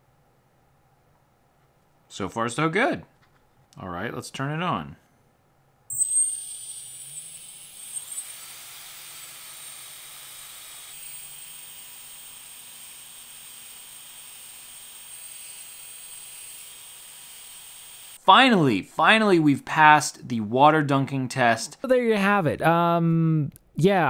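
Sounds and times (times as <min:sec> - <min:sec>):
small motor whining: 0:05.9 - 0:18.2.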